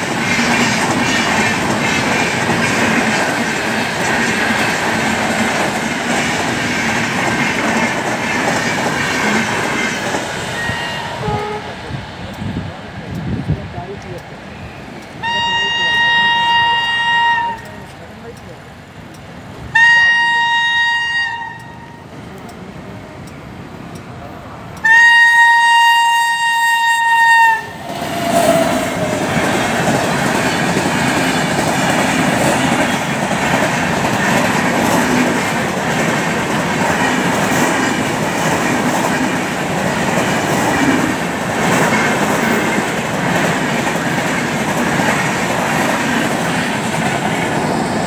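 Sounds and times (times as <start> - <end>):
train rushing past: 0.0 - 48.0
wheels clacking on rails: 0.0 - 48.0
train horn blast: 10.6 - 11.8, 15.2 - 17.8, 19.7 - 22.0, 24.8 - 29.0.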